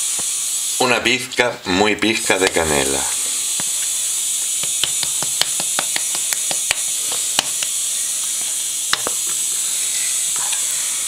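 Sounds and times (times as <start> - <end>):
steady hiss: 0.0 - 11.0
spice container tapping clicks: 4.6 - 7.8, 8.9 - 9.2.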